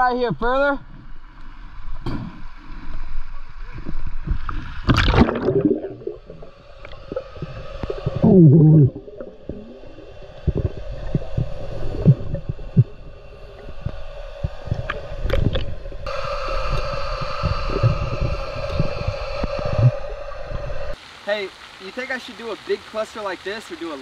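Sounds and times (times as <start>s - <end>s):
muffled underwater gurgling: 3.8s - 21.0s
splash into water: 4.8s - 6.2s
steady low hum: 5.3s - 21.0s.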